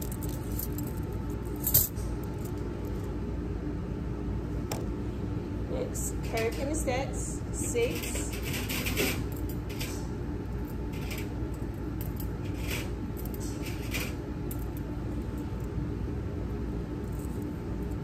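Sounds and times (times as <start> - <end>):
metal instruments clicking and clinking: 0.0 - 3.0
low room hum: 0.0 - 18.0.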